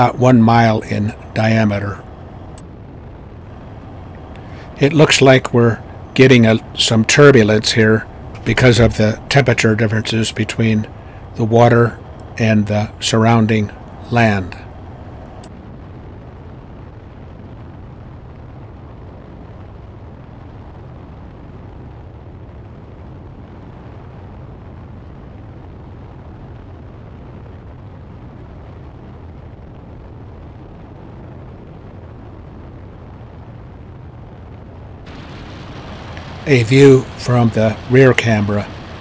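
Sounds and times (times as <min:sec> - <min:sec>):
airplane engine: 0:00.0 - 0:02.6, 0:03.5 - 0:15.5, 0:35.1 - 0:39.0
wind rumble: 0:00.0 - 0:39.0.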